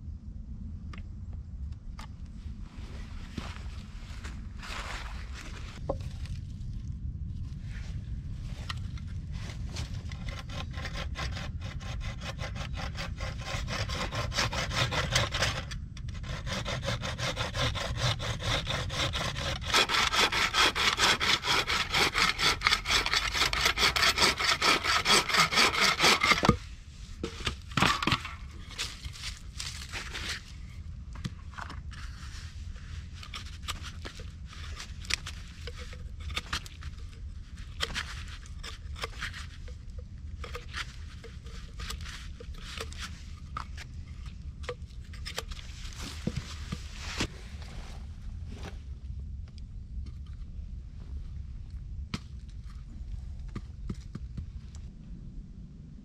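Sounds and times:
hand tool scraping wood: 9.6s - 30.7s, 31.6s - 48.0s
bow saw cutting wood: 9.7s - 30.4s, 33.1s - 39.8s, 40.4s - 43.9s.

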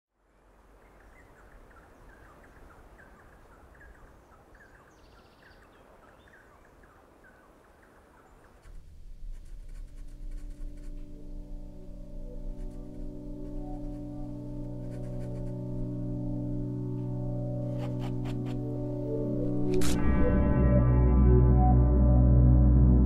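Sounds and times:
small birds chirping: 0.2s - 11.4s, 12.4s - 16.0s
dip pen scratching on paper: 8.6s - 11.1s, 12.5s - 15.6s, 17.7s - 18.6s.

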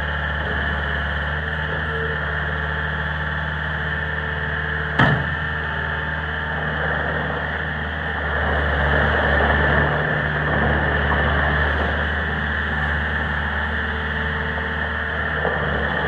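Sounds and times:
diesel engine running: 0.0s - 16.0s
loader bucket clank: 4.8s - 5.9s
machine driving over gravel: 4.9s - 16.0s.

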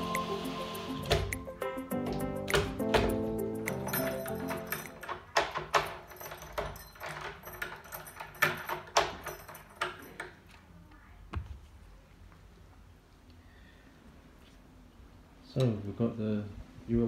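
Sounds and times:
keys jangling against a lock: 2.9s - 10.6s.

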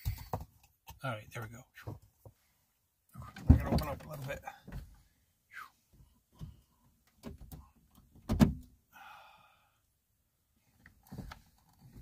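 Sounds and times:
car door thud: 8.2s - 8.6s
car door knocks and clicks: 8.2s - 8.7s.

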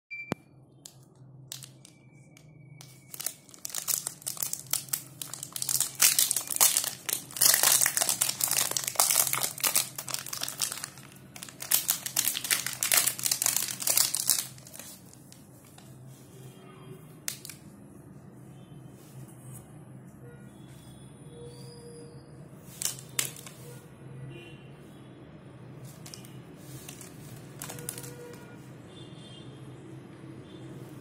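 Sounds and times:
plastic wrapper crinkling: 0.8s - 16.1s, 17.2s - 17.7s, 22.7s - 23.6s, 25.9s - 28.5s.

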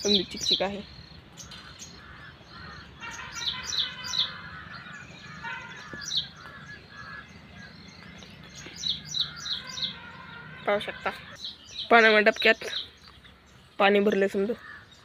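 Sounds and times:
birds chirping: 0.0s - 15.0s
low bird chatter: 0.0s - 15.0s.

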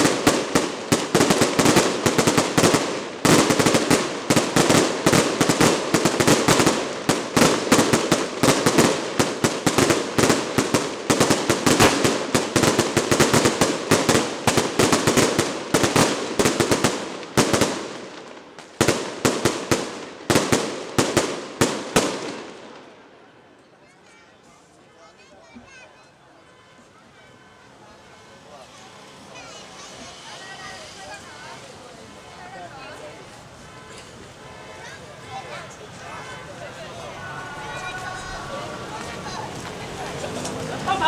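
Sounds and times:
firecrackers bursting: 0.0s - 23.1s.

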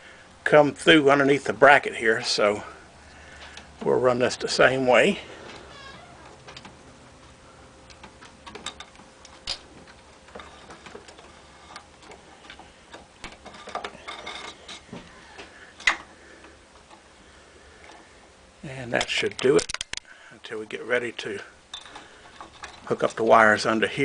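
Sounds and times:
wire harness clicks and rustles: 3.4s - 6.8s, 7.8s - 17.1s, 18.8s - 24.0s.

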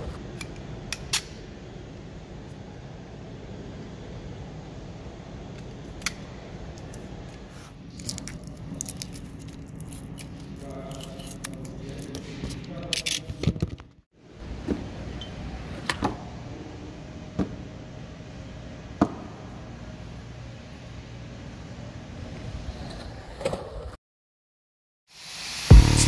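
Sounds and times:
steady low hum: 0.0s - 12.9s
tape tearing: 7.9s - 12.2s.

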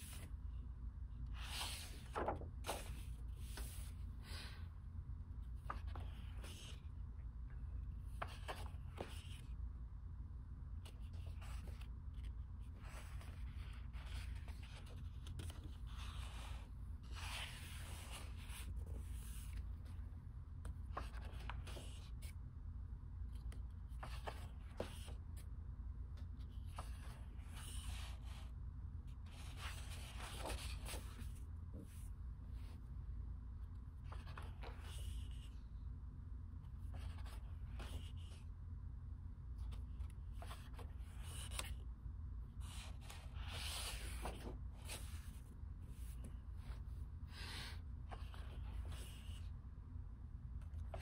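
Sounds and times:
paper pages rustling and sliding: 0.0s - 0.4s, 1.3s - 4.6s, 5.5s - 6.8s, 8.0s - 9.6s, 10.8s - 19.9s, 20.8s - 22.4s, 24.0s - 25.4s, 29.3s - 32.7s, 34.0s - 35.6s, 42.6s - 49.5s
steady low hum: 0.0s - 51.0s.

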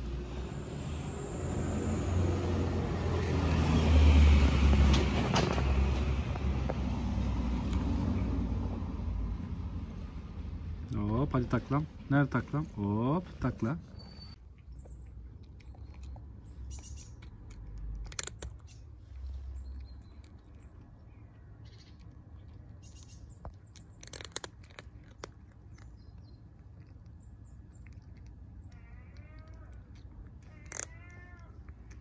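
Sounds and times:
cat crunching dry kibble: 13.3s - 32.0s.

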